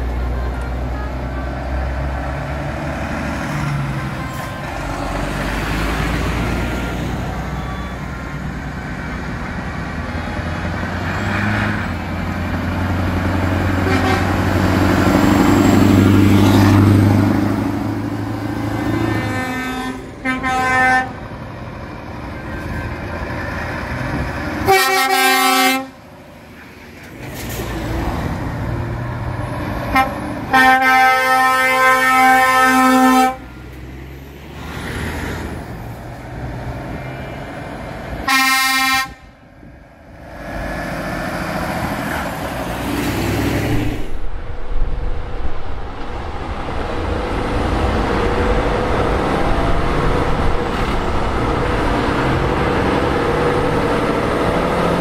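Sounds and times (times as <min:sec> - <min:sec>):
trucks driving past: 0:00.0 - 0:55.0
truck air horn blasts: 0:13.8 - 0:14.5, 0:19.0 - 0:21.2, 0:24.6 - 0:26.0, 0:29.9 - 0:33.5, 0:38.2 - 0:39.4.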